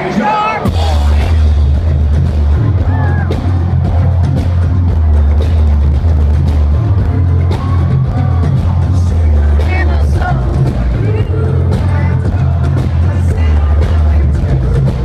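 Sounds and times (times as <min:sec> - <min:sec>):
drums: 0:00.0 - 0:15.0
heavy bass notes: 0:00.0 - 0:15.0
person singing: 0:07.2 - 0:15.0.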